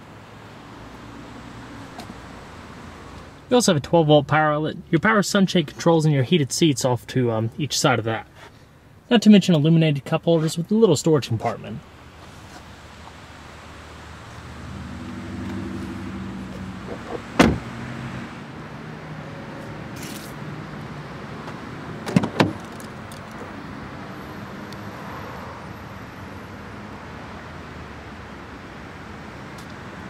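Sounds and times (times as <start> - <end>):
car door shutting: 16.5 - 17.8, 22.0 - 22.9
car door handle and latch clicks: 16.9 - 17.7, 22.0 - 23.4.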